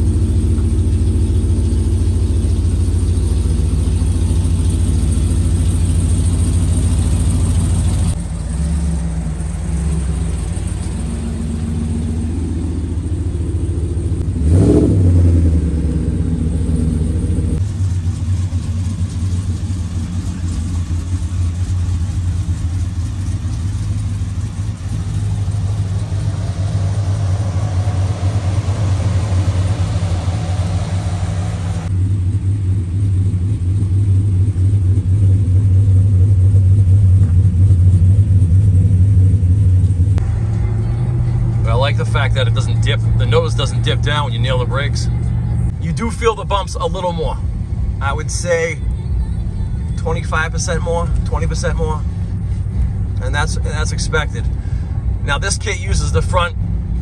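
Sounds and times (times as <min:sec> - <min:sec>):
pickup engine droning and revving: 0:00.0 - 0:57.0.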